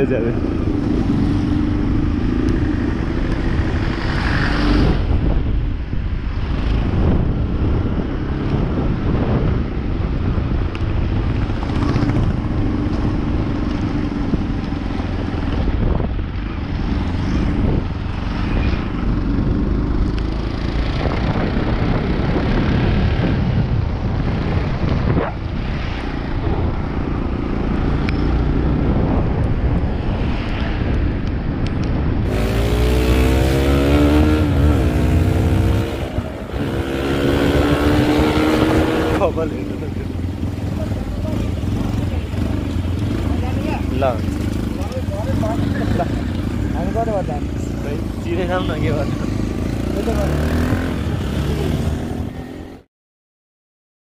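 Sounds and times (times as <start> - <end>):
wind noise on microphone: 0.0 - 46.8
motorcycle engine running: 32.3 - 52.8.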